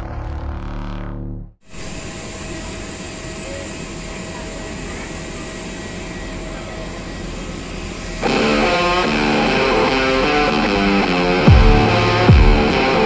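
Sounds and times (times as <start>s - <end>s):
vehicle engine noise: 0.0s - 13.0s
guitar background music: 8.2s - 13.0s.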